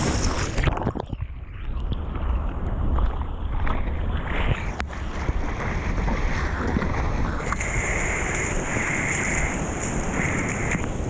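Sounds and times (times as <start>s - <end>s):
wind buffeting microphone: 0.0s - 11.0s
whitewater rushing: 4.4s - 11.0s.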